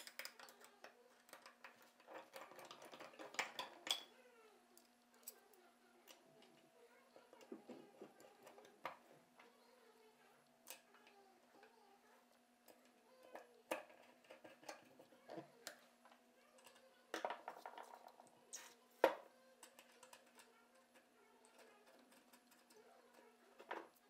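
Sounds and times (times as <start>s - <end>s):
small metal clicks and taps: 0.0s - 4.1s, 19.0s - 24.0s.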